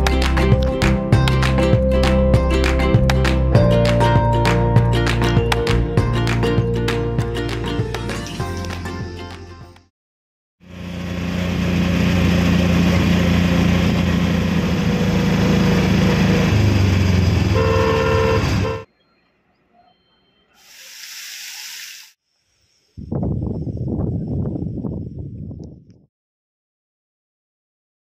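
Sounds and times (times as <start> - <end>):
small engine running: 10.6 - 18.8
road noise: 10.6 - 22.2
horn honking: 17.4 - 20.4
water spray hissing: 20.6 - 23.0.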